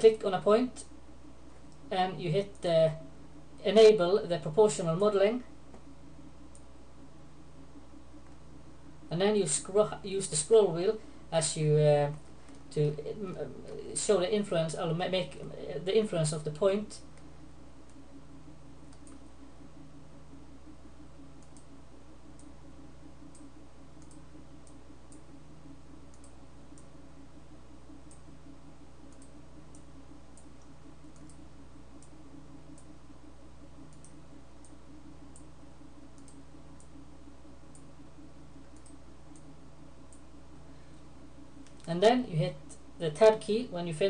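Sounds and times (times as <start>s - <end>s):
low electrical hum: 0.0s - 44.0s
computer mouse clicks: 18.9s - 19.2s, 21.4s - 21.7s, 23.3s - 25.2s, 26.1s - 26.9s, 29.1s - 31.4s, 33.9s - 35.5s, 36.1s - 37.0s, 38.7s - 39.5s.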